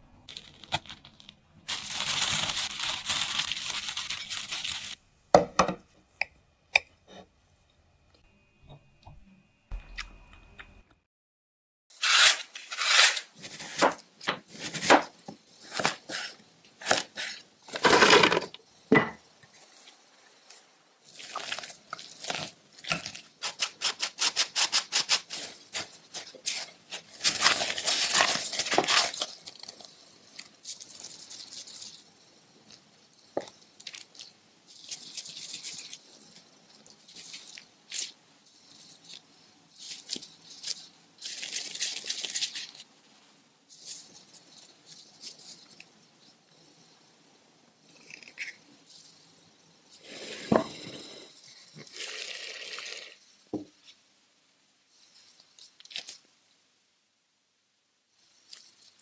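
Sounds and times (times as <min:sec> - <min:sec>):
dough handled in plastic gloves: 0:00.2 - 0:05.0, 0:19.5 - 0:46.9
knife scraping taro root: 0:12.0 - 0:15.0, 0:22.2 - 0:29.7.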